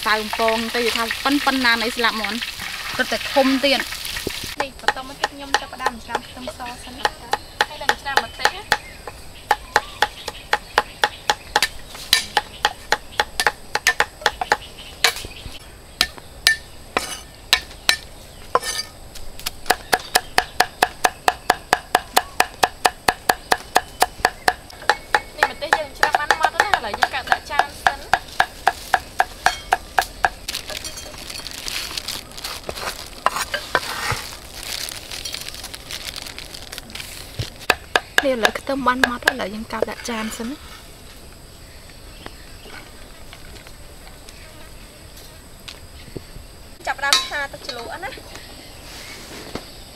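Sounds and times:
cleavers chopping on wooden blocks: 4.6s - 15.3s, 19.4s - 30.6s, 37.4s - 39.9s.

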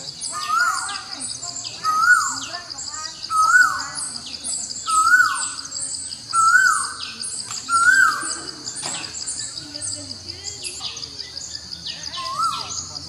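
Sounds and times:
birds chirping: 0.0s - 13.0s
bird whistled call: 0.3s - 2.5s, 3.2s - 4.0s, 4.8s - 5.7s, 6.3s - 9.6s.

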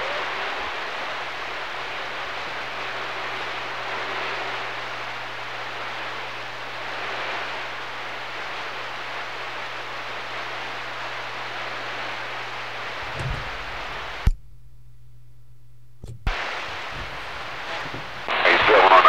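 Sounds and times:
radio static hiss: 0.0s - 19.0s
low hum: 11.8s - 19.0s.

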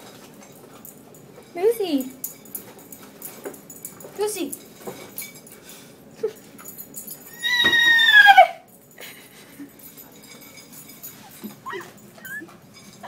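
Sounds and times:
person imitating horse whinny: 7.3s - 8.6s.

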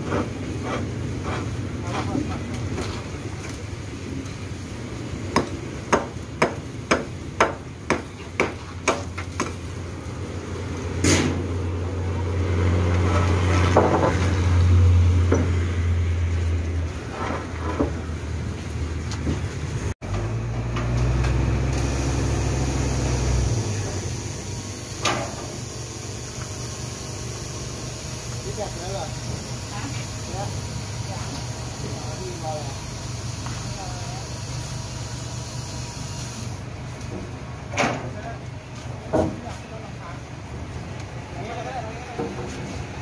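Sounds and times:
sharp knocks of concrete planks: 5.3s - 9.6s
crane engine running low: 9.6s - 37.7s.

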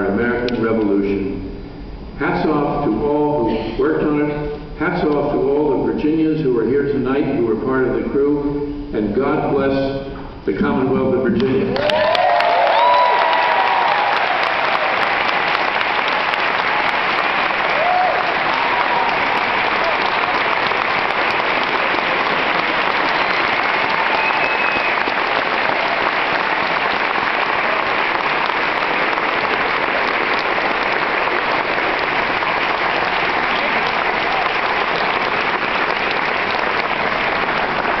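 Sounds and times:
audience applauding: 11.8s - 38.0s.

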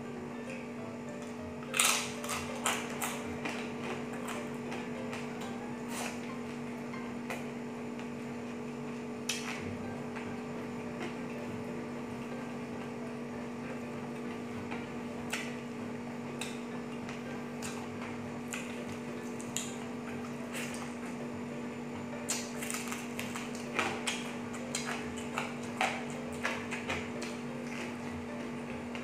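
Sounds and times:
steady low hum: 0.0s - 29.0s
person chewing with wet smacks: 22.3s - 28.0s.

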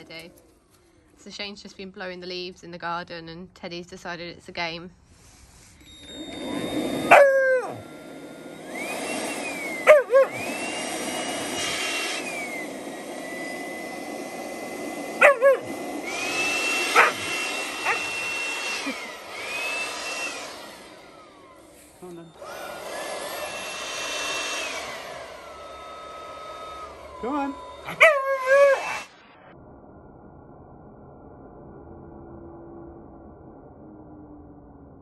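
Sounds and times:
leaf blower motor whine: 5.2s - 29.5s
puppy barking and yipping: 7.0s - 7.8s, 9.8s - 10.5s, 15.2s - 15.8s, 16.8s - 18.2s, 27.8s - 29.0s.

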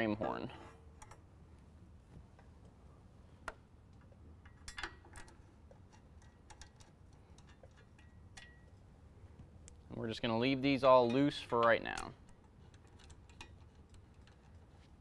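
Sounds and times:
faint metal clicks and ticks: 1.0s - 1.3s, 3.4s - 10.0s, 10.6s - 14.9s.

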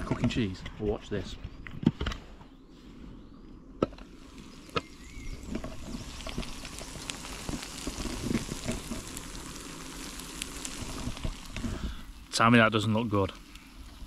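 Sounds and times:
cheese sizzling and crackling: 4.0s - 14.0s.

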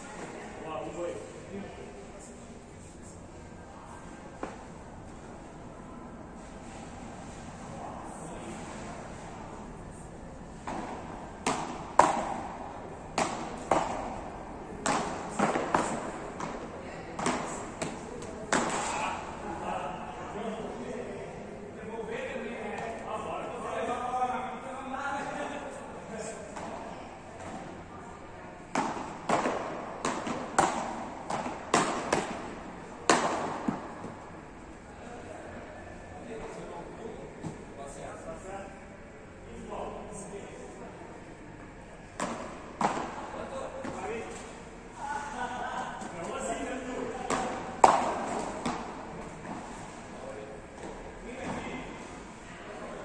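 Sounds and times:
paddles hitting ball: 10.6s - 19.3s, 28.7s - 34.2s, 42.1s - 44.5s, 47.0s - 50.0s.

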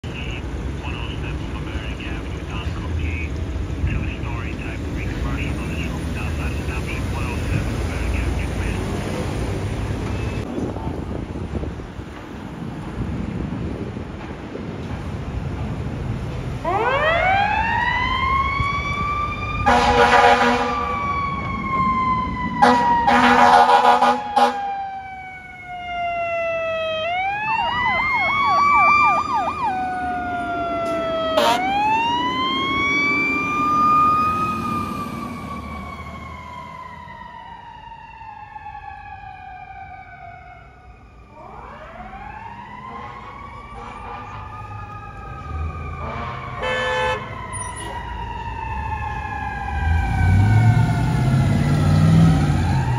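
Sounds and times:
siren winding up and down: 16.6s - 40.5s, 41.3s - 52.9s
fast electronic yelp siren: 16.7s - 50.9s
air horn blasts: 19.6s - 20.9s, 22.6s - 24.6s, 31.4s - 31.7s, 46.0s - 48.0s.

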